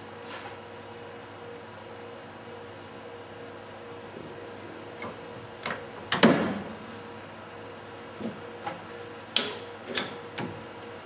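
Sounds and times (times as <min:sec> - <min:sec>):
spanner clanking on metal: 0:09.4 - 0:10.5.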